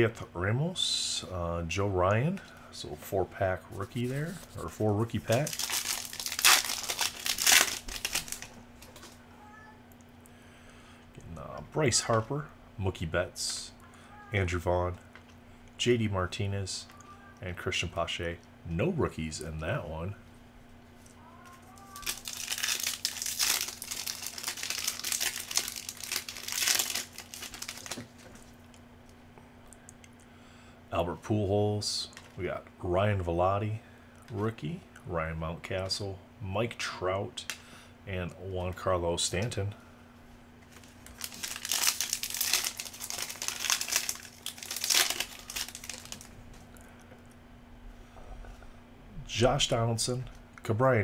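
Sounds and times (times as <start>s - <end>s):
plastic wrapper tearing and crinkling: 3.9s - 9.2s, 21.6s - 28.6s, 40.7s - 46.3s.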